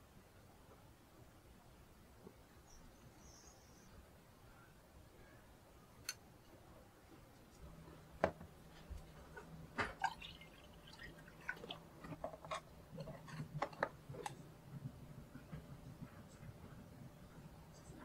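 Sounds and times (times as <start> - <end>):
water poured into glass: 10.0 - 11.8.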